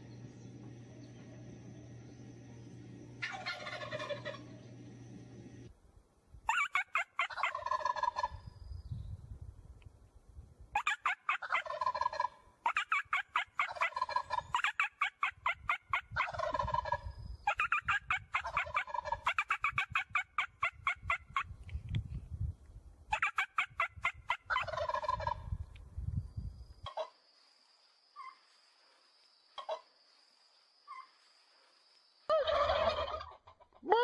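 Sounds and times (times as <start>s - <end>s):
turkeys gobbling: 3.2s - 4.8s, 6.5s - 8.4s, 10.8s - 21.5s, 23.1s - 25.4s, 26.8s - 27.1s, 29.6s - 29.9s, 32.3s - 34.0s.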